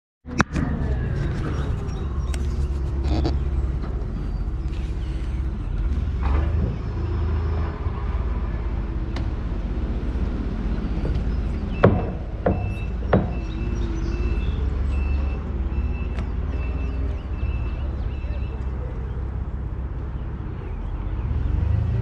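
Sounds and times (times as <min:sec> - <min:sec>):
vehicle engine idling: 0:00.6 - 0:22.0
short knocks: 0:11.8 - 0:13.5.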